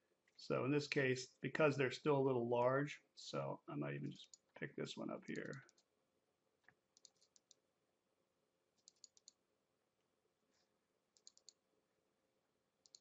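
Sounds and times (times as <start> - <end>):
computer mouse clicking: 5.3 - 5.9, 6.6 - 7.6, 8.8 - 9.4, 11.1 - 11.6.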